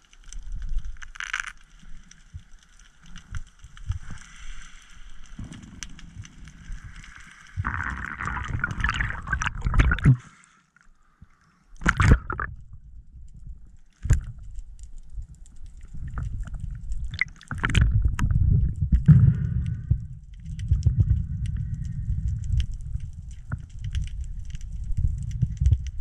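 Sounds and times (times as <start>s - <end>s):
clicks and crackles: 0.0s - 26.0s
underwater rumble of moving water: 1.7s - 26.0s
water splash: 6.8s - 10.4s, 11.8s - 12.6s, 17.1s - 18.0s.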